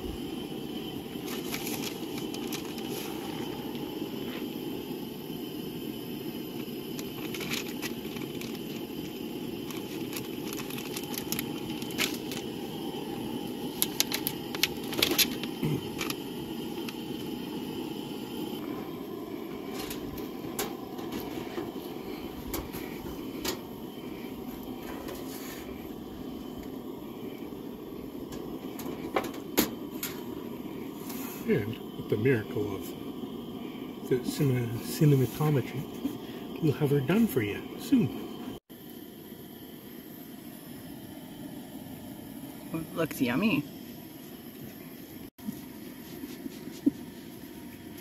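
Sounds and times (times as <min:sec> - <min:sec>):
packaging crinkling: 0:01.2 - 0:03.2, 0:07.2 - 0:08.8, 0:09.6 - 0:12.5, 0:13.7 - 0:16.2.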